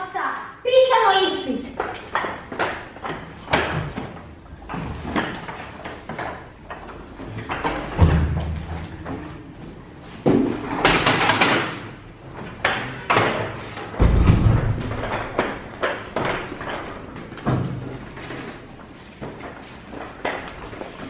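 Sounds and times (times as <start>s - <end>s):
door opening and shutting: 10.3s - 18.0s.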